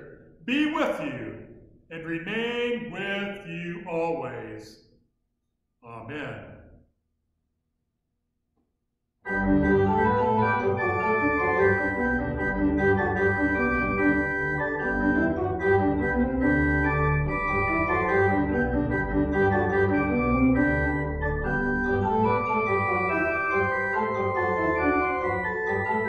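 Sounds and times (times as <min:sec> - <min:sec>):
church organ chords: 0:09.2 - 0:26.0.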